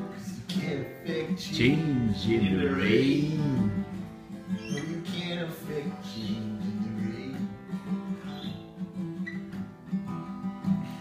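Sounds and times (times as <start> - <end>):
person singing: 0.0 - 4.1
acoustic guitar strumming: 0.0 - 11.0.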